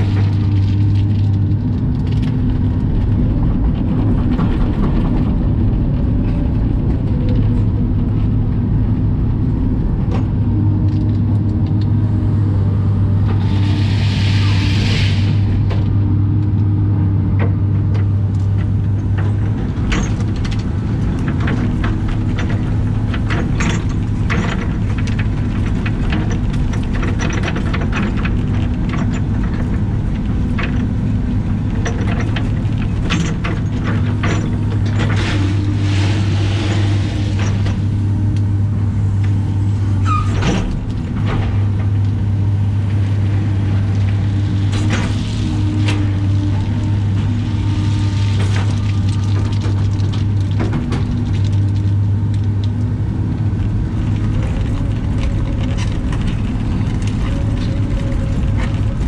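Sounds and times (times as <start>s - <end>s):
gravel clicking and rattling: 0.0s - 13.7s, 15.3s - 59.0s
excavator diesel engine hum: 0.0s - 59.0s
hydraulic whine: 12.0s - 16.6s.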